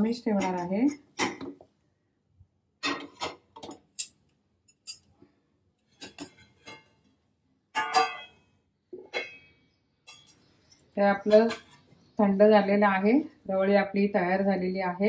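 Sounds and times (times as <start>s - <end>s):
metal cookware clanking: 0.0s - 1.6s, 2.8s - 4.1s, 4.7s - 5.1s, 5.9s - 7.0s, 7.7s - 8.4s, 9.0s - 10.5s, 11.1s - 11.9s
steel lid clanking onto pot: 7.8s - 8.3s.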